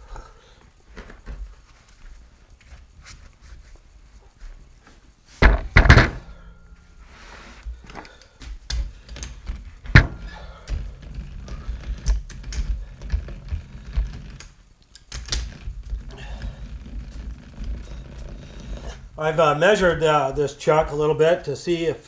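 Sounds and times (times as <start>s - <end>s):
metal parts clicking and tapping: 8.0s - 16.2s.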